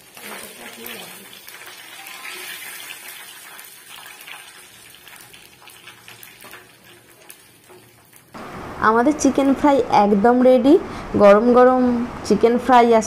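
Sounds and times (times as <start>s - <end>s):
chicken deep-frying in oil: 0.0s - 8.4s.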